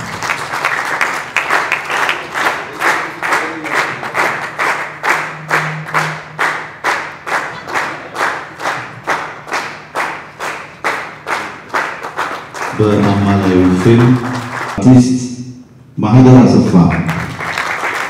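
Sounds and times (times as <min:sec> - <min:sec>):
audience clapping in rhythm: 0:00.0 - 0:15.4, 0:16.6 - 0:18.0.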